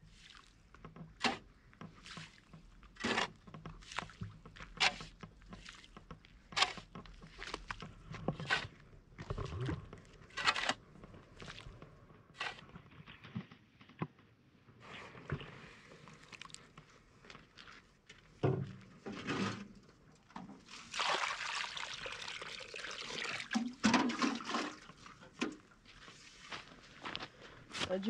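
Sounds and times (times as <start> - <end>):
water pouring and splashing: 0.0 - 10.6, 11.3 - 11.8, 14.8 - 18.1, 20.5 - 27.1.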